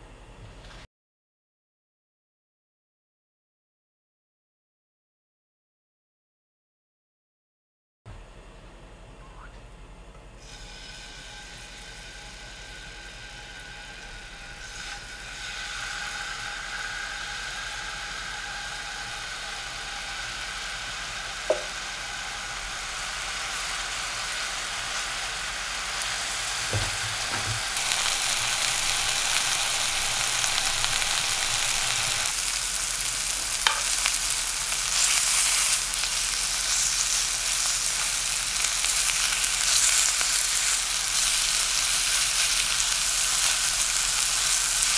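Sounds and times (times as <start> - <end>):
meat sizzling in frying pan: 10.4 - 44.9.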